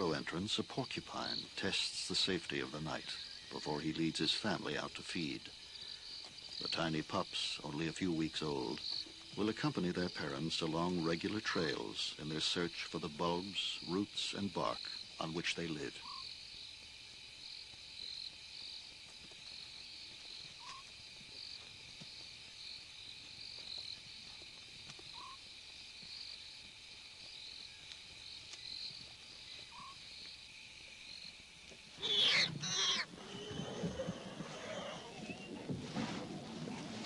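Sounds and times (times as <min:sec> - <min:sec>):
insects trilling: 0:00.0 - 0:35.7
harsh animal calls: 0:32.0 - 0:35.7.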